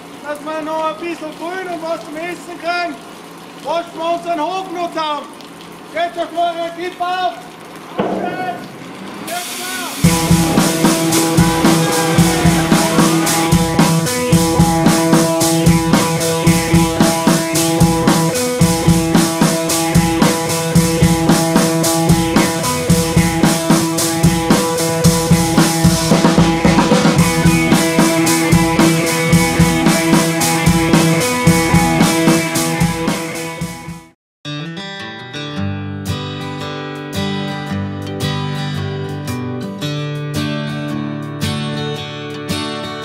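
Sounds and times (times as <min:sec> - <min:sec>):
background music with drum beat: 0:10.0 - 0:34.2.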